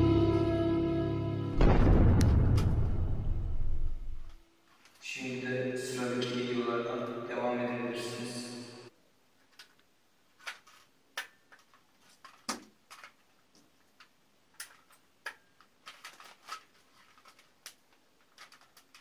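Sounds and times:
plastic toy guns clicking: 10.4s - 13.3s, 14.0s - 19.0s.

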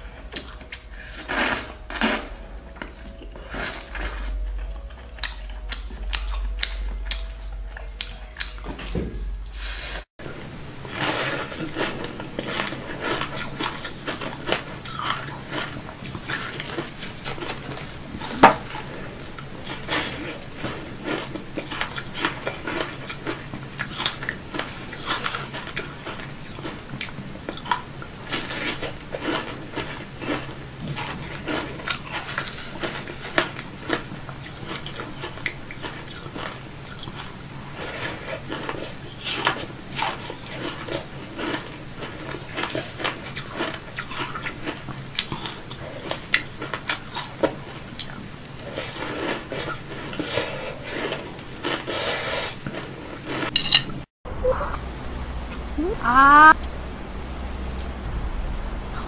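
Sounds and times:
steady low hum: 0.0s - 52.0s, 54.3s - 59.0s
moist crackly chewing clicks: 4.0s - 8.6s, 18.8s - 52.0s.

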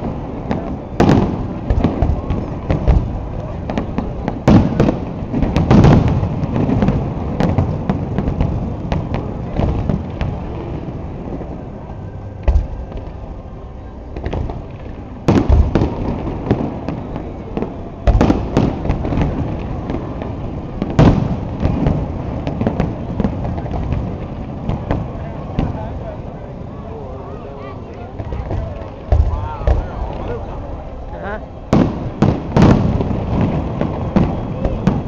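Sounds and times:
small fireworks pops: 0.0s - 13.5s, 14.1s - 26.3s, 27.9s - 35.0s
fireworks booming: 0.0s - 26.7s, 28.1s - 35.0s.

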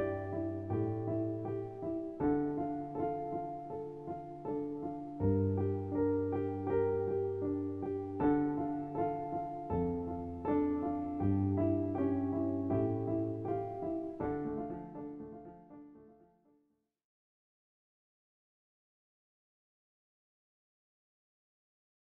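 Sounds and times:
background piano music: 0.0s - 16.5s.

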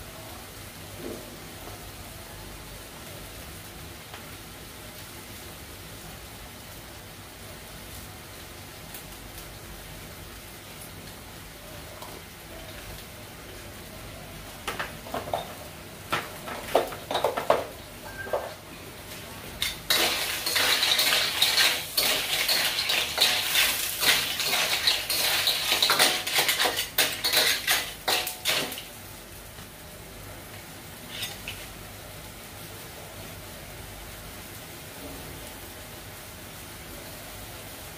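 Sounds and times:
spatula scraping clams in wok: 19.6s - 28.9s, 31.1s - 31.7s.

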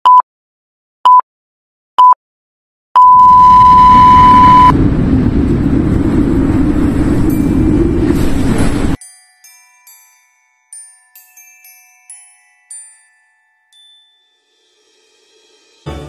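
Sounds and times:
short electronic beeps: 3.0s - 4.7s
long electronic beep: 3.0s - 4.8s
loud steady rumbling: 3.5s - 9.0s.

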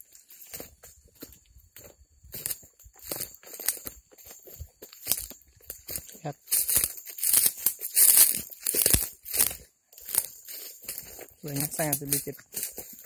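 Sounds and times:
footsteps crunching through dry leaves: 0.0s - 13.0s.

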